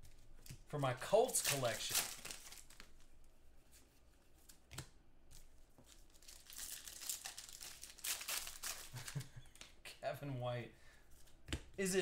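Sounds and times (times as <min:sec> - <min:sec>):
crinkling wrappers and cards rustling: 0:00.0 - 0:03.2, 0:05.3 - 0:09.8.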